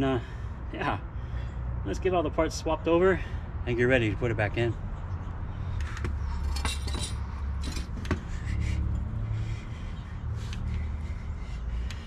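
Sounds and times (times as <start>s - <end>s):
metal parts clinking together: 5.8s - 8.0s.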